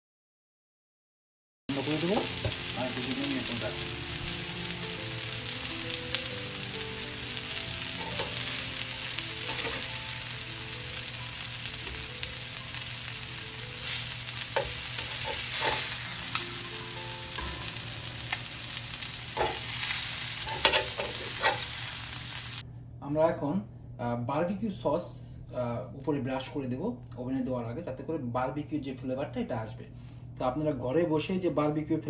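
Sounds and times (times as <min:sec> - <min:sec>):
chicken sizzling on grill pan: 0:01.7 - 0:22.6
metal tongs clicking and scraping: 0:19.4 - 0:21.8.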